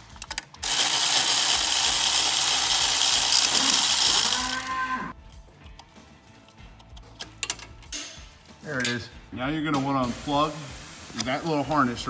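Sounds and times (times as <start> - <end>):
power ratchet whirring: 0.0 - 4.7.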